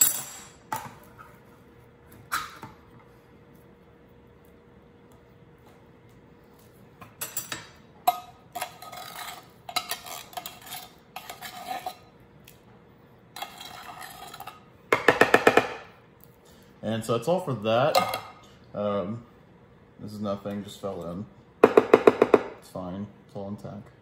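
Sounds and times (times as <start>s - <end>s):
knife scraping metal can: 8.6s - 12.0s.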